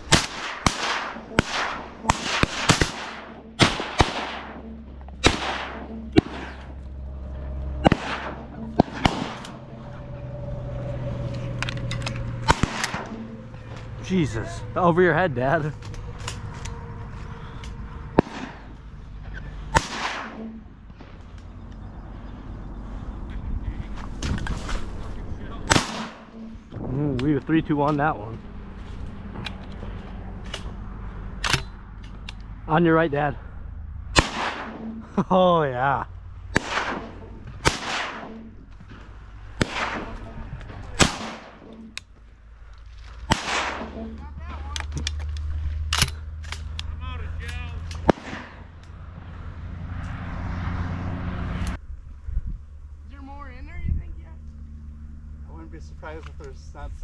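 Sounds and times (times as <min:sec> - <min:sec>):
shotgun shots with echo: 0:00.1 - 0:04.6, 0:05.2 - 0:06.7, 0:07.8 - 0:09.6, 0:12.5 - 0:13.2, 0:18.2 - 0:18.7, 0:19.7 - 0:20.5, 0:25.6 - 0:26.3, 0:34.2 - 0:34.9, 0:36.5 - 0:38.4, 0:39.6 - 0:40.3, 0:41.0 - 0:41.7, 0:43.3 - 0:44.0, 0:48.0 - 0:48.7.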